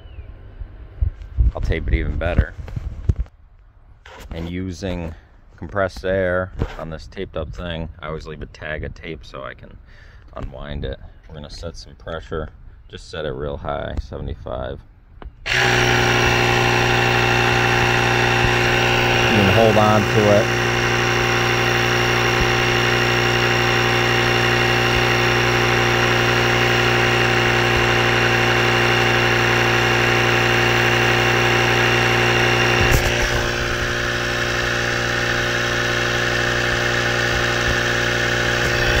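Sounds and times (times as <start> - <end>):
electric air compressor running: 15.5 - 39.0.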